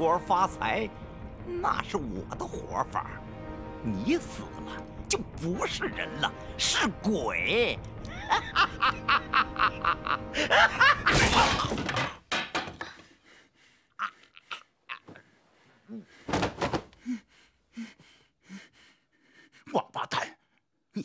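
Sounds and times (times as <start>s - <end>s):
tense music: 0.0s - 11.1s
wooden bench crashing: 11.0s - 13.0s, 16.3s - 16.9s
heavy thud of body falling: 16.3s - 16.9s.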